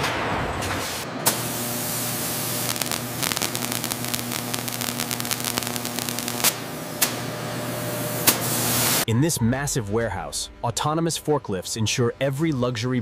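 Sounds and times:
steady electrical hum: 0:01.2 - 0:09.0
spark crackle: 0:01.3 - 0:06.7.

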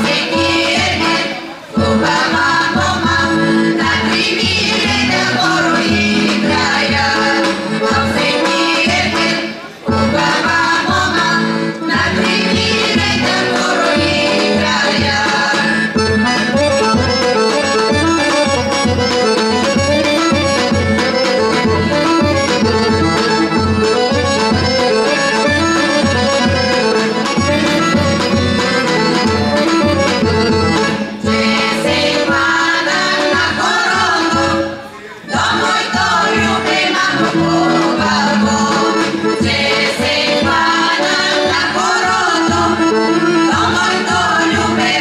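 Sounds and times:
accordion melody: 0:00.0 - 0:45.0.

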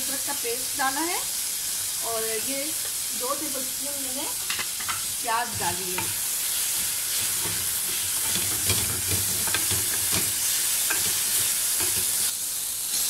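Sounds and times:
onion sizzling in oil: 0:00.0 - 0:13.0
spatula scraping and tapping pan: 0:04.4 - 0:12.3.

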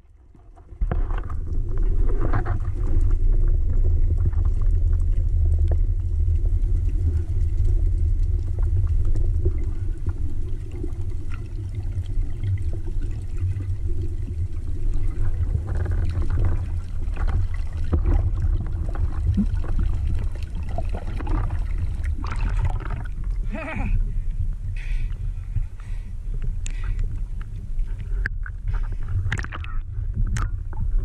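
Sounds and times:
bubbling and crackling: 0:00.0 - 0:31.0
underwater rushing water rumble: 0:00.2 - 0:31.0
water splash: 0:15.0 - 0:23.4, 0:29.3 - 0:30.5.

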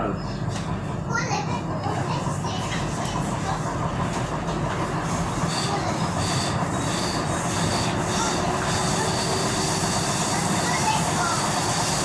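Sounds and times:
train wheels rumbling on rail: 0:00.0 - 0:12.0
high wheel squeal: 0:05.3 - 0:12.0.

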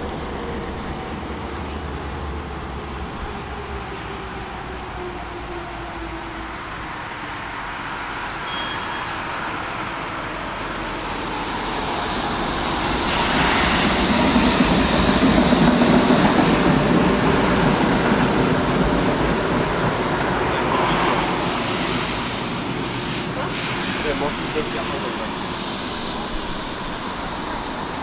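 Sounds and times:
tram running on rails: 0:00.0 - 0:28.0
car tyres hissing on wet road: 0:20.6 - 0:28.0.

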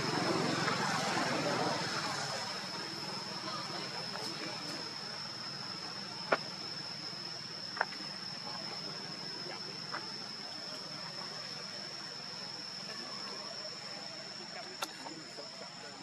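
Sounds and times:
faint outdoor hiss: 0:00.0 - 0:16.0
high-pitched insect drone: 0:00.0 - 0:16.0.

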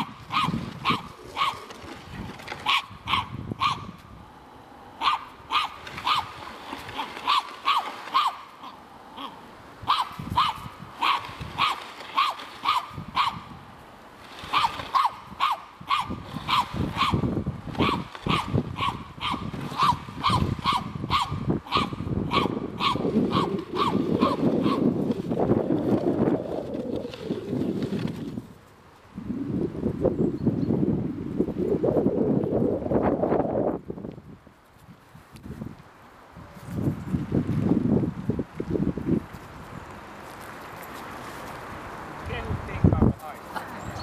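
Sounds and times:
wind on microphone: 0:00.0 - 0:44.0
dog barking high-pitched: 0:00.3 - 0:01.6, 0:02.6 - 0:03.9, 0:05.0 - 0:06.3, 0:07.2 - 0:08.5, 0:09.9 - 0:13.4, 0:14.5 - 0:17.2, 0:17.8 - 0:24.8.

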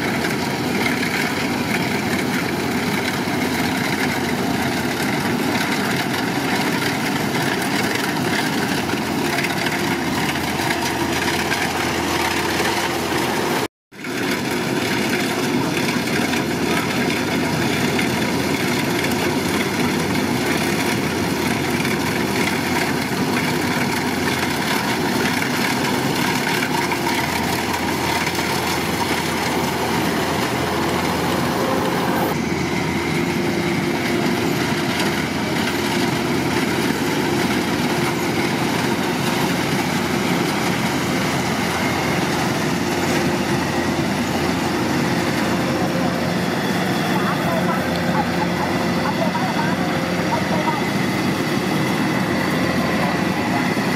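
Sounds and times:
combine harvester running: 0:00.0 - 0:53.9.

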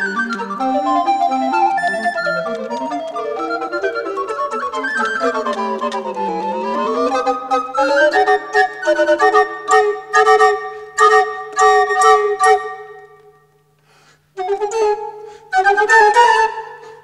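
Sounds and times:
recorder quartet playing: 0:00.0 - 0:13.0.

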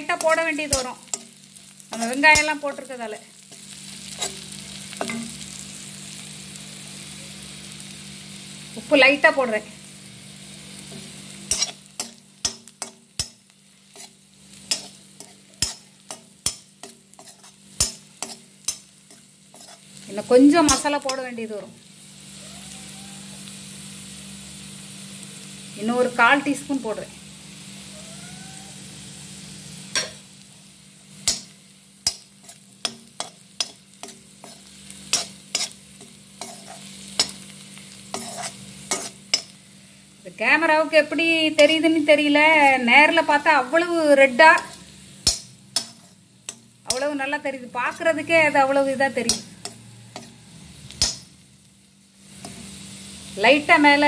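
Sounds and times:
faint sizzle: 0:00.0 - 0:54.0
metal spatula scraping and clinking: 0:00.2 - 0:02.7, 0:03.5 - 0:05.6, 0:10.8 - 0:20.0, 0:29.9 - 0:30.2, 0:31.2 - 0:39.6, 0:44.6 - 0:47.1, 0:49.2 - 0:51.3, 0:52.4 - 0:52.8.

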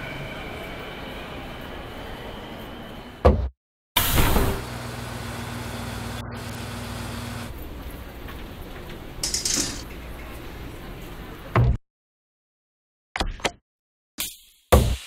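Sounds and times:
train doors sliding shut: 0:04.0 - 0:04.7
coins dropping into fare box: 0:09.2 - 0:09.9.

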